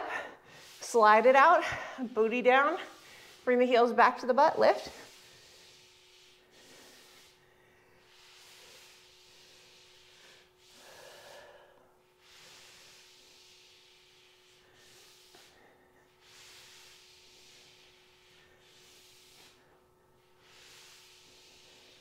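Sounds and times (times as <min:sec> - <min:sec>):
person breathing heavily: 0:00.0 - 0:00.8, 0:05.0 - 0:19.8.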